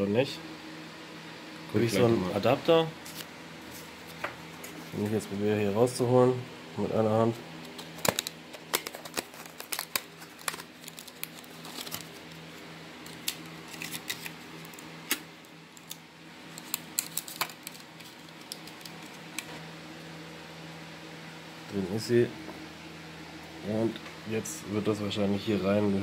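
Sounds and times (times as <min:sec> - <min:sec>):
steady low hum: 0:00.0 - 0:26.0
plastic packaging crackling: 0:07.7 - 0:19.5.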